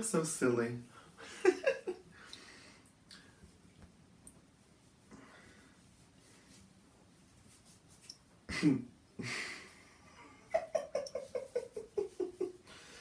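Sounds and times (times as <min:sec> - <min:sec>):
man laughing: 0:01.2 - 0:02.0, 0:08.5 - 0:12.6
breath: 0:05.1 - 0:05.8, 0:12.7 - 0:13.0.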